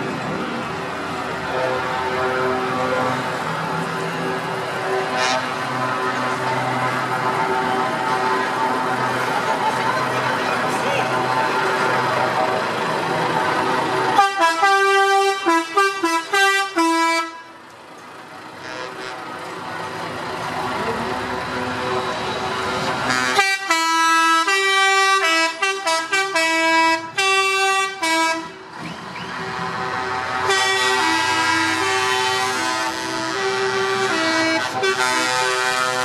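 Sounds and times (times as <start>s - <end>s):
truck engines passing: 0.0s - 36.0s
truck air horns playing notes: 1.4s - 3.8s, 4.8s - 6.0s, 14.1s - 17.6s, 18.6s - 19.4s, 23.0s - 28.6s, 29.5s - 36.0s.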